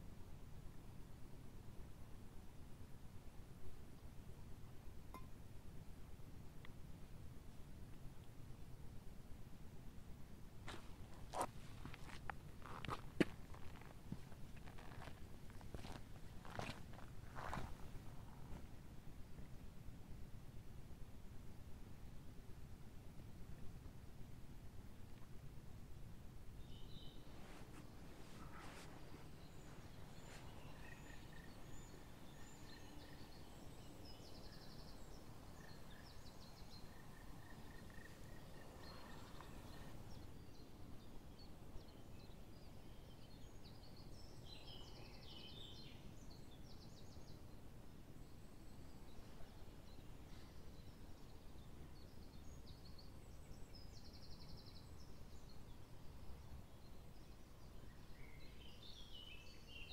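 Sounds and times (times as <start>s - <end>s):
songbirds chirping and trilling: 14.6s - 17.9s, 26.6s - 59.9s.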